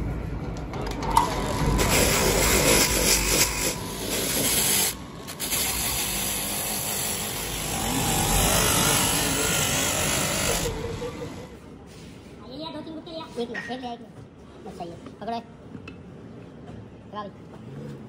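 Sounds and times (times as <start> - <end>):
wire brush grinder scraping rubber: 1.3 - 10.8.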